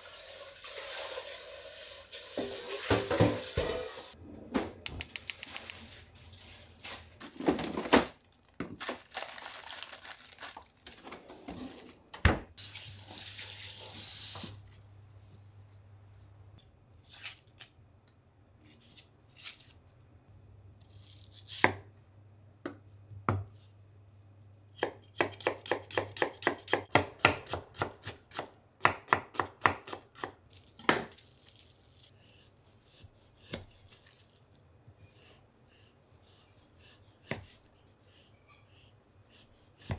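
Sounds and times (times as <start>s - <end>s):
knife chopping onion on board: 24.8s - 31.1s, 33.0s - 33.8s, 37.2s - 37.6s.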